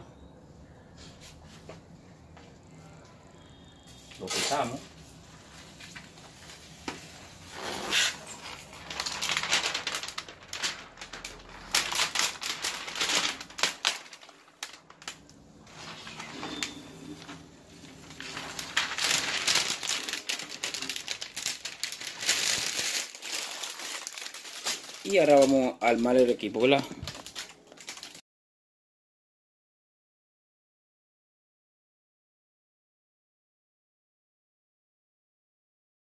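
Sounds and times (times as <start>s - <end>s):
plastic film crinkling: 4.1s - 28.2s.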